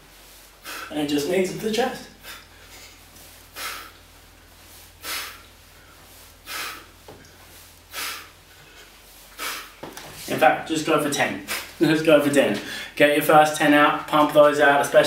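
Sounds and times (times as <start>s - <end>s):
man exhaling sharply: 3.5s - 4.0s, 5.0s - 5.5s, 6.5s - 6.9s.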